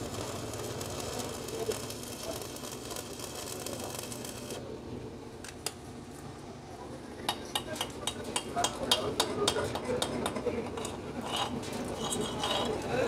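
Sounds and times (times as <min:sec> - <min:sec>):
welding arc crackling: 0:00.0 - 0:04.6.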